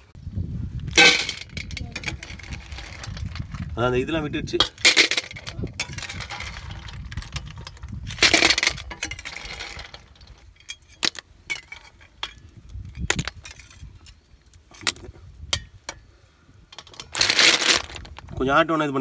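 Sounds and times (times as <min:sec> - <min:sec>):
shells rattling: 0:00.9 - 0:03.6, 0:04.6 - 0:10.4, 0:16.8 - 0:18.3.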